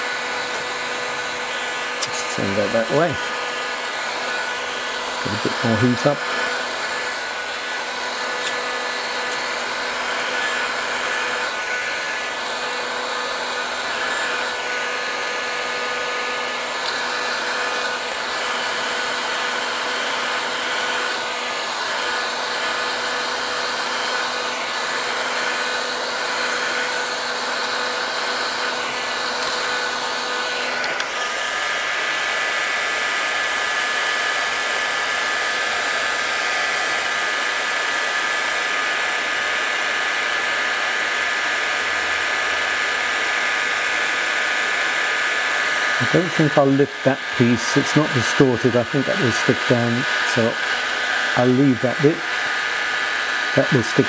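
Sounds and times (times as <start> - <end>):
heat gun blowing air: 0.0 - 54.0.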